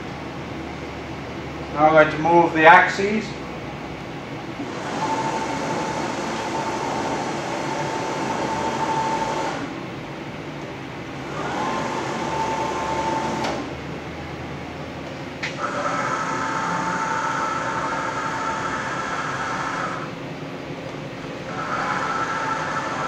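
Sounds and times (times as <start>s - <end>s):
constant machine hum: 0.0s - 23.0s
motors whining: 15.4s - 20.2s, 21.4s - 23.0s.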